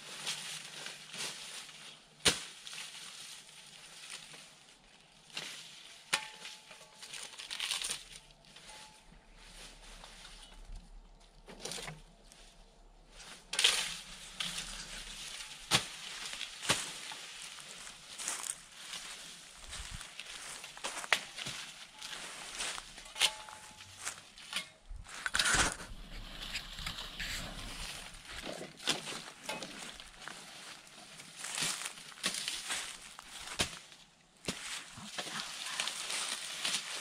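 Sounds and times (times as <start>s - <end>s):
dry leaves rustling and crackling: 0.0s - 37.0s
sugar cane stalks chopped: 2.2s - 2.9s, 13.4s - 30.4s, 31.3s - 34.9s.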